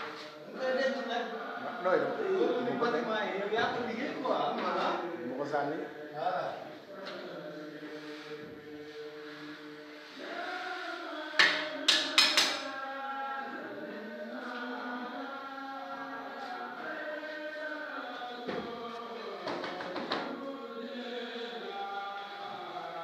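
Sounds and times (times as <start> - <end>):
voices chanting long tones: 0.0 - 23.0.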